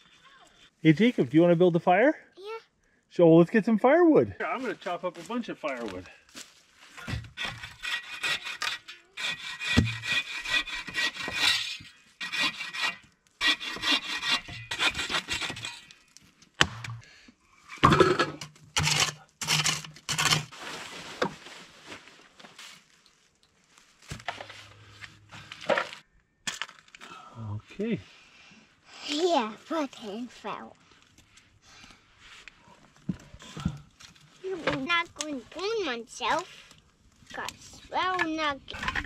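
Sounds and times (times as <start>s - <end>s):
bow saw rasping through log: 7.4s - 15.9s.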